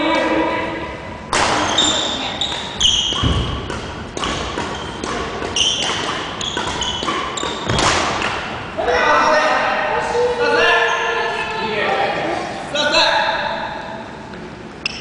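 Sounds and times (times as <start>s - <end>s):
sharp shuttlecock hit: 1.3s - 1.9s, 2.5s - 8.4s
shoes squeaking on wooden floor: 1.6s - 7.9s.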